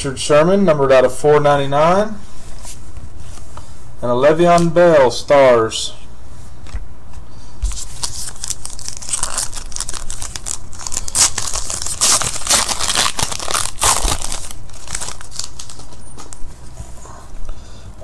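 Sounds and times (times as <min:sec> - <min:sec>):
foil wrapper tearing and crinkling: 0:07.7 - 0:16.4.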